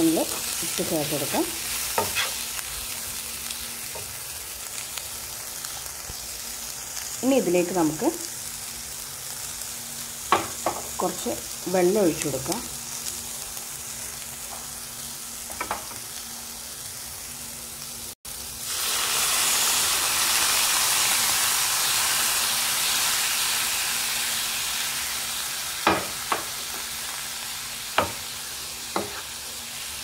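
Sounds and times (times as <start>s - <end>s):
food frying in a pan: 0.0s - 30.0s
loud sizzle: 0.0s - 30.0s
wooden spatula knocking pan: 28.0s - 28.2s.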